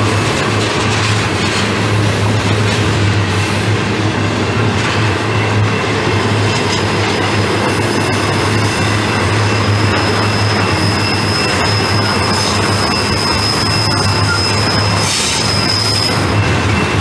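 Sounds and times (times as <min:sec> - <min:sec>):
train wheels rumbling on rail: 0:00.0 - 0:17.0
high wheel squeal: 0:05.0 - 0:17.0.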